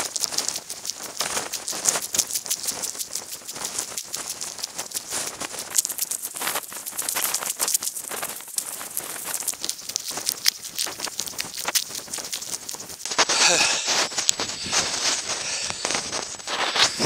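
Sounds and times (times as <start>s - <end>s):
footsteps on gravel: 13.1s - 17.0s.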